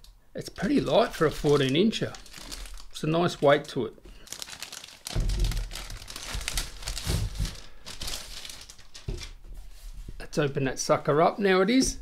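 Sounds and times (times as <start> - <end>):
plastic sleeve crinkling: 0.6 - 9.4.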